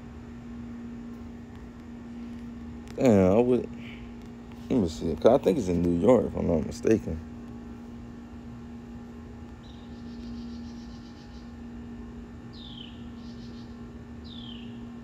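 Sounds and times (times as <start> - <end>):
steady low hum: 0.0 - 15.0
bird chirps: 9.6 - 11.5, 12.5 - 14.8.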